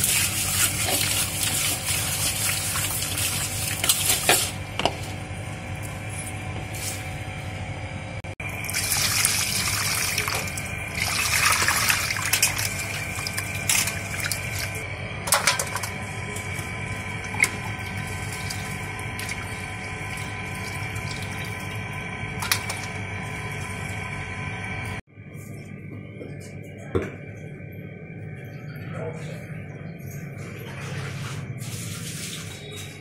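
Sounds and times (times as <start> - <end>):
faint hum: 4.5 - 31.6
tap water running into steel bowl: 8.6 - 16.6, 17.2 - 24.0.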